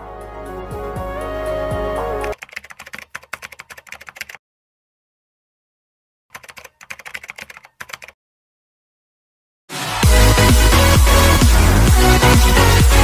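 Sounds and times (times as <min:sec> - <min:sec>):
keyboard typing clicks: 0:02.2 - 0:04.4, 0:06.3 - 0:08.2.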